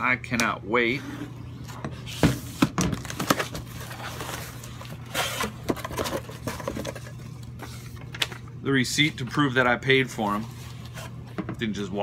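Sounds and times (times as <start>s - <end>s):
packing paper rustling: 2.9s - 8.4s.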